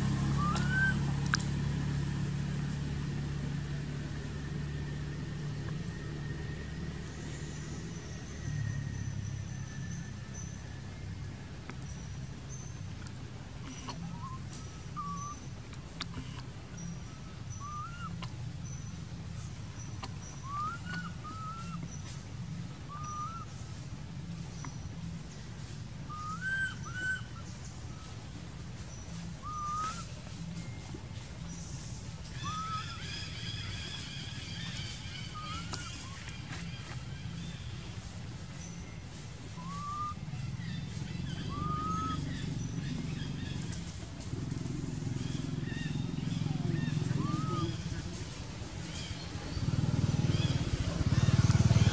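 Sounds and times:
low background rumble: 0.0 - 51.9
steady low hum: 0.0 - 51.9
whistle-like animal calls: 0.3 - 1.0, 13.7 - 15.5, 17.1 - 18.2, 20.4 - 21.9, 22.9 - 23.5, 26.1 - 28.1, 29.4 - 30.2, 32.3 - 33.6, 39.5 - 40.3, 41.3 - 42.3, 45.8 - 48.0.

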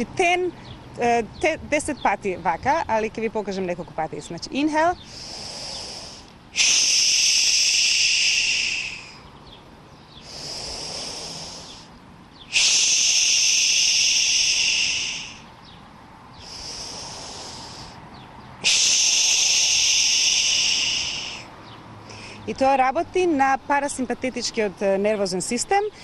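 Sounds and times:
woman exhaling through mouth: 5.0 - 9.2, 12.5 - 15.4, 16.4 - 18.0, 18.6 - 21.5
woman inhaling through nose: 5.0 - 9.2, 10.2 - 11.9, 12.5 - 15.5, 16.4 - 18.0, 18.6 - 22.4.

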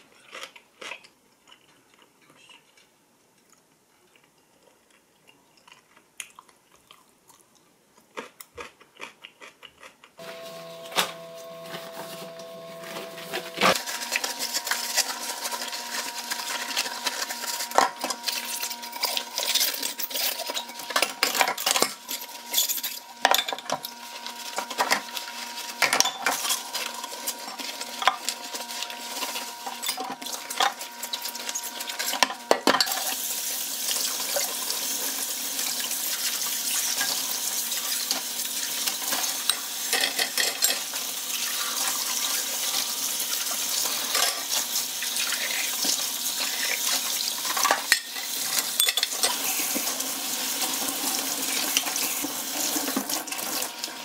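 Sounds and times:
tap water running: 23.3 - 54.0
dishes clinking in a sink: 25.8 - 26.7, 32.0 - 33.2, 38.8 - 41.0, 47.4 - 49.8.

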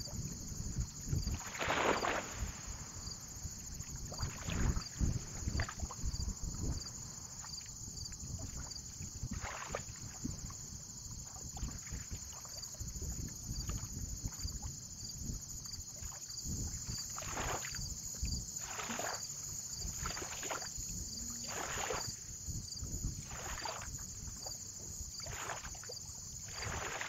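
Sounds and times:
high insect trill: 0.0 - 27.0
wind rumbling on microphone: 0.0 - 27.0
small waves lapping: 0.6 - 14.7, 15.8 - 27.0
water splashes: 1.1 - 14.7, 15.9 - 27.0.

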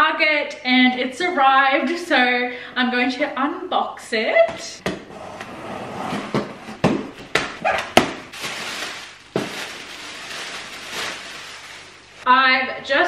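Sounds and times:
rustling of box flaps and packing: 6.1 - 12.0.

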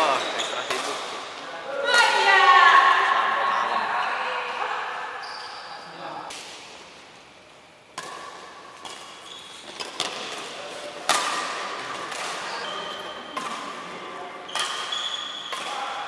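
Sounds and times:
shoes squeaking on wooden court: 0.0 - 1.0, 5.2 - 6.0, 8.8 - 10.9, 12.0 - 15.9
racket hitting shuttlecock: 8.0 - 12.6, 13.3 - 13.9, 14.5 - 16.0.

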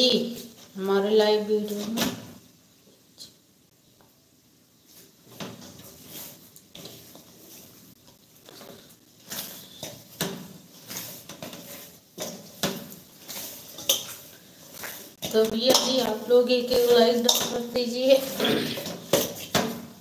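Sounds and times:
metal pan being scrubbed: 10.7 - 18.9.

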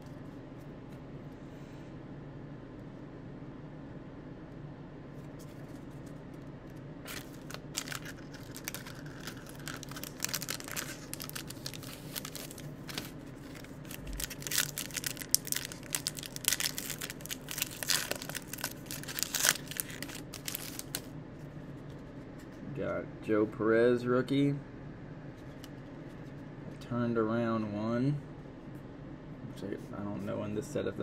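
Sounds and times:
steady low hum: 0.0 - 31.0
foil wrapper crinkling and tearing: 7.1 - 21.1.

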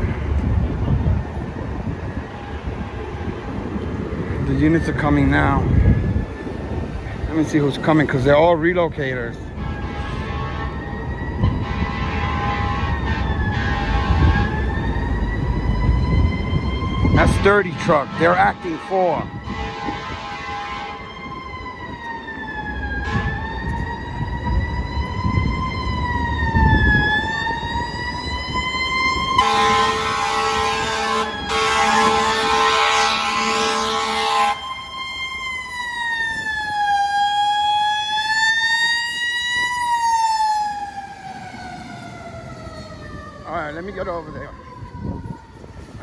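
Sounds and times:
siren wailing: 9.4 - 46.0
air horn blasts: 9.6 - 10.8, 11.5 - 14.5, 17.2 - 21.0, 23.0 - 23.4, 29.4 - 34.6.

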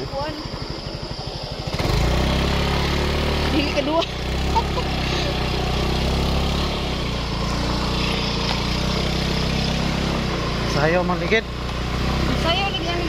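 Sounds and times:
motorcycle engine droning: 0.0 - 13.0.

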